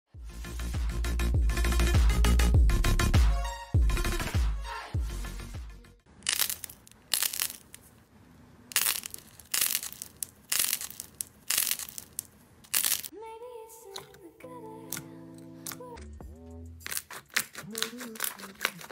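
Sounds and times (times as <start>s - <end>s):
slime crunching: 6.2s - 8.0s, 8.7s - 13.1s, 16.8s - 18.9s.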